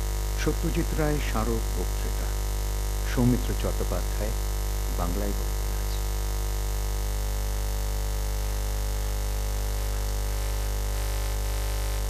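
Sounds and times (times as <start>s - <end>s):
constant hiss: 0.0s - 12.0s
electrical mains hum: 0.0s - 12.0s.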